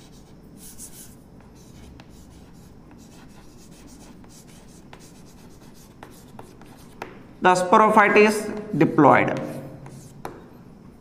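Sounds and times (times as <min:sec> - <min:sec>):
chalk scratching on chalkboard: 0:00.0 - 0:07.2, 0:09.4 - 0:10.5.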